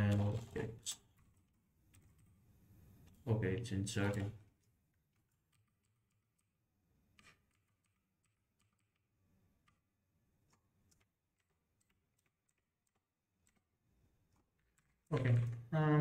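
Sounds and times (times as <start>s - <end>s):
keyboard typing: 0.0s - 2.4s, 3.9s - 15.7s.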